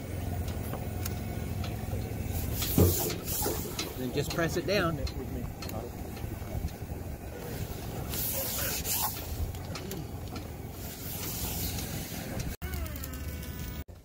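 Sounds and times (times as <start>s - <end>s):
low outdoor rumble: 0.0s - 14.0s
hands rubbing vinyl banner: 8.0s - 9.4s.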